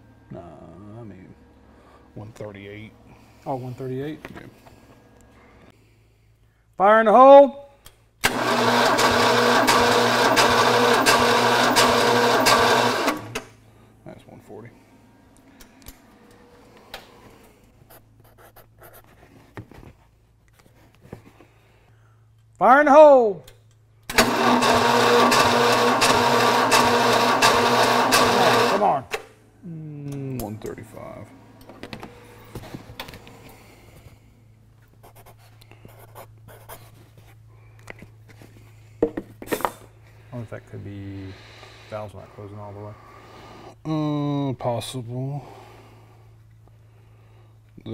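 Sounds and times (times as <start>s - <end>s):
low steady hum: 0.0s - 6.8s, 28.9s - 47.9s.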